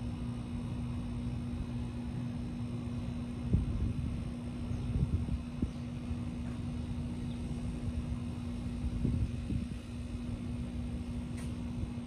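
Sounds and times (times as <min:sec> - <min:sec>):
vehicle engine running: 0:00.0 - 0:12.0.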